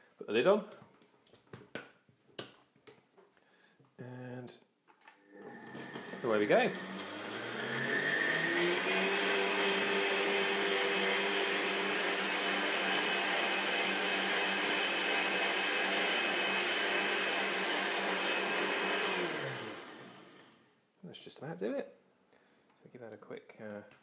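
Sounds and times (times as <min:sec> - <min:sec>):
blender motor running: 0:05.3 - 0:20.6.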